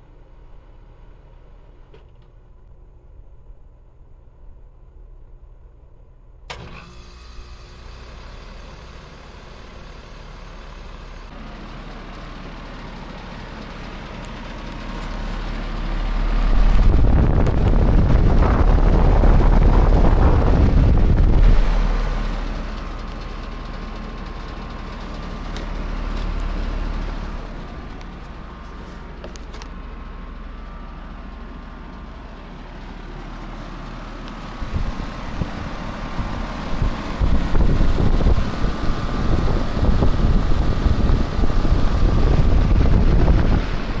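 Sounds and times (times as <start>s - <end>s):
heat pump humming: 0.0s - 44.0s
wind buffeting microphone: 16.3s - 22.1s, 34.6s - 44.0s.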